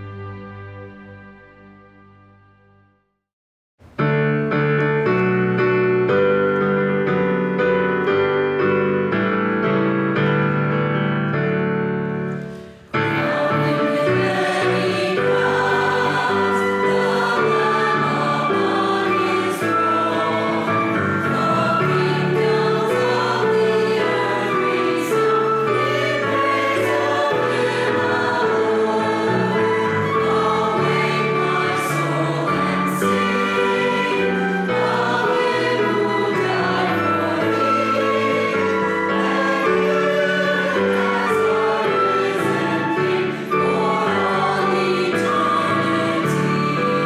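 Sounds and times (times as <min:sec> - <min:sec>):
choir singing a hymn: 0:12.9 - 0:47.0.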